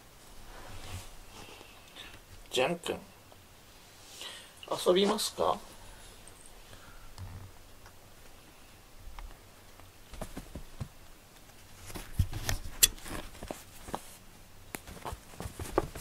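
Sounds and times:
cat scrabbling on fabric mat: 10.1 - 11.0, 14.8 - 16.0.

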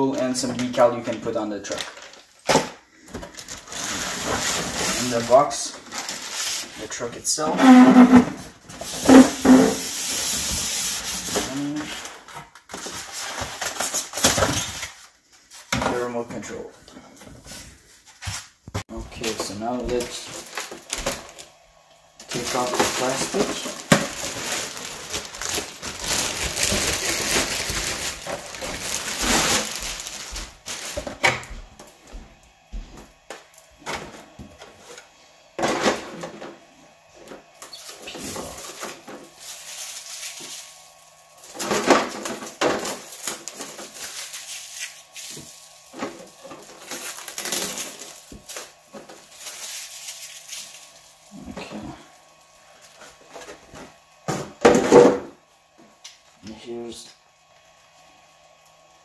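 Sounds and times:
plastic wrapping crinkling: 0.0 - 7.0, 19.2 - 21.6, 22.2 - 31.3, 37.6 - 53.8.

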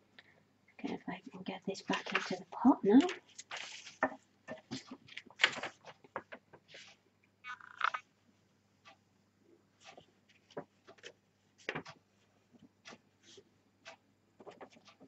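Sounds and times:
paper rustling: 1.9 - 7.0.

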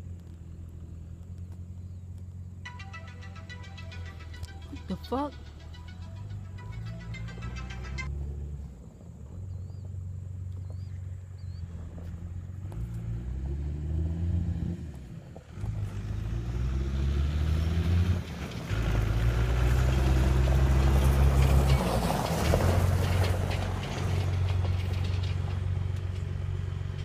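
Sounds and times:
diesel truck engine revving: 11.6 - 27.0.

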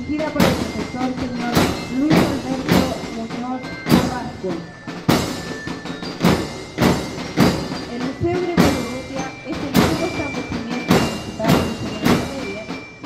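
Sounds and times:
marching band drums beating: 0.0 - 13.0.

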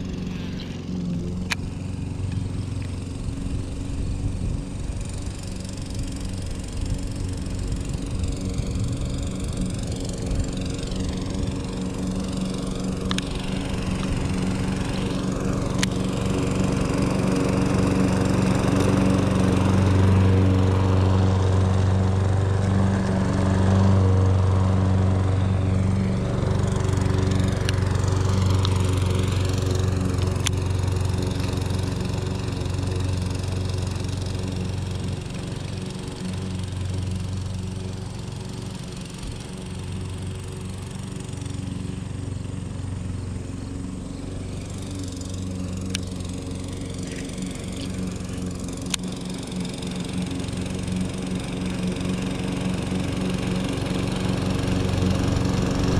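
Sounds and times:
lawn mower engine running: 0.0 - 55.9.

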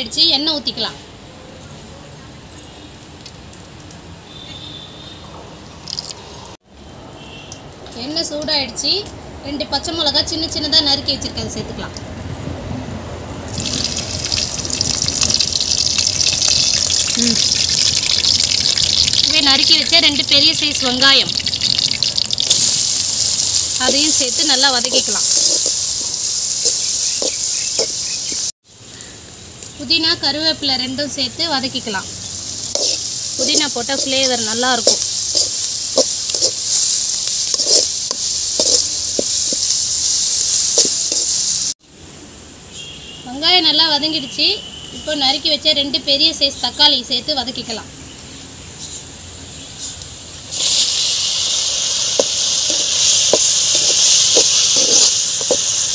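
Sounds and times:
chillies sizzling in hot oil: 5.8 - 6.4, 13.5 - 41.8, 42.4 - 55.9
metal spatula scraping pan: 32.7 - 34.1, 37.4 - 39.3.

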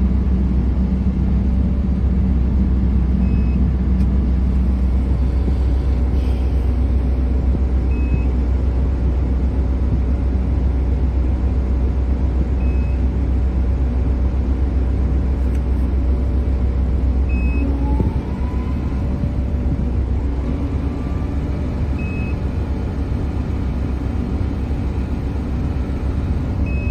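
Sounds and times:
drilling rig engine drone: 0.0 - 26.9
rising whine: 17.2 - 26.9.

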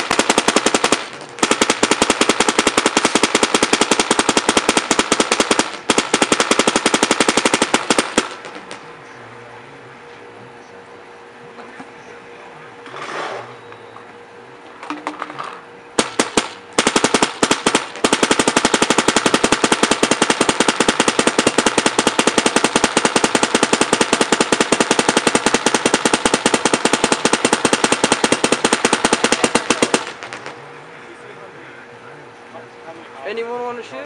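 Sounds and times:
paintball marker firing: 0.0 - 8.9, 16.0 - 30.6.

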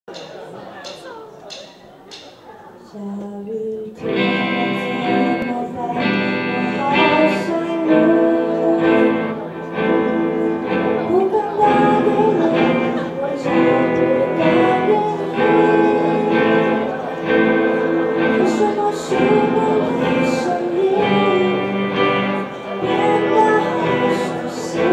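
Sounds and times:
woman singing: 2.8 - 9.4, 11.0 - 17.0, 18.1 - 24.9
electric guitars strumming: 4.0 - 24.9.

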